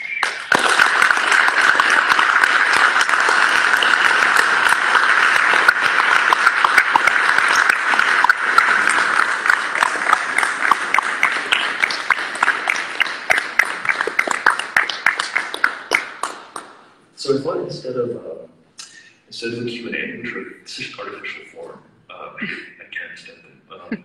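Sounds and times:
audience applauding: 0.0 - 16.8.

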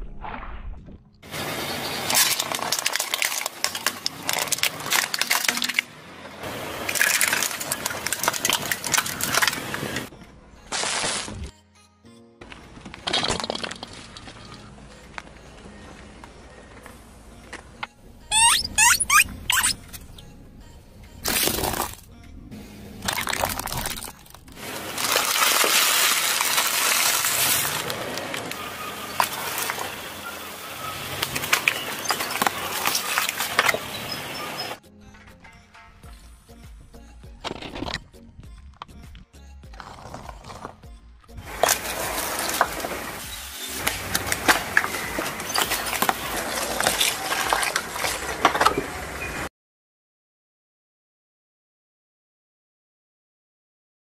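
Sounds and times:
plastic toys crunching under tyre: 1.3 - 10.1, 10.7 - 11.5, 12.4 - 14.7, 21.2 - 22.1, 23.0 - 34.7, 39.7 - 49.2.

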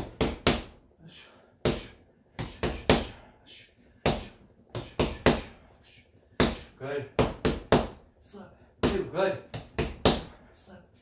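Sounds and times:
punches hitting punching bag: 0.0 - 0.8, 4.0 - 5.6, 6.4 - 8.0, 8.8 - 10.3.

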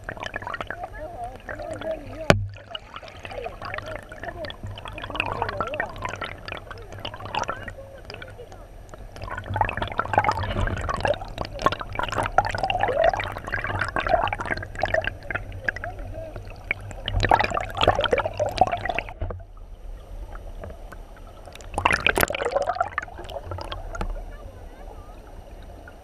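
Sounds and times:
river current gurgling underwater: 0.0 - 26.0.

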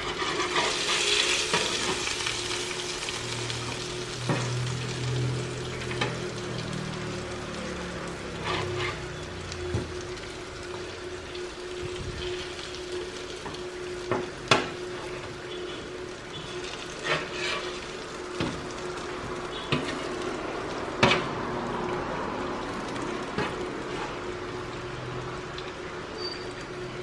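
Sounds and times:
metal spatula scraping a tray: 0.0 - 1.7, 8.4 - 9.1, 17.0 - 17.8
chicken sizzling on a metal tray: 0.0 - 27.0
steady hum: 8.9 - 19.6.

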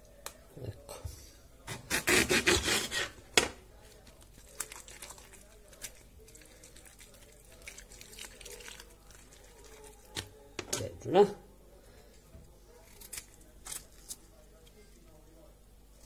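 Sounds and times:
artichoke leaves crackling and snapping: 4.0 - 10.9, 12.8 - 14.4.

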